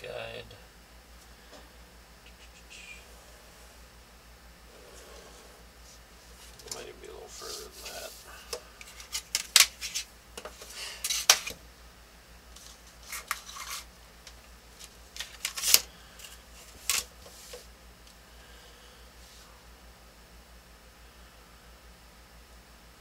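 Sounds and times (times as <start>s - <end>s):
paper rustling: 12.6s - 13.9s, 14.8s - 17.6s.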